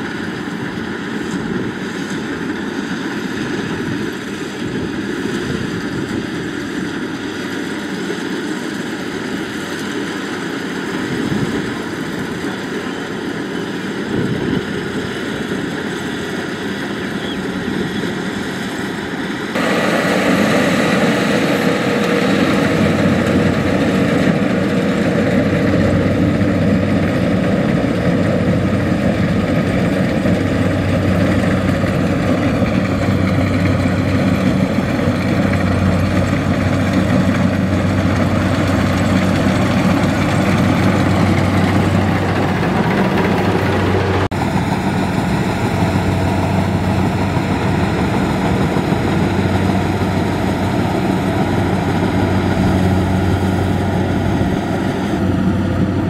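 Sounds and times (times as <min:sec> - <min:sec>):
combine harvester engine droning: 0:00.0 - 0:56.0.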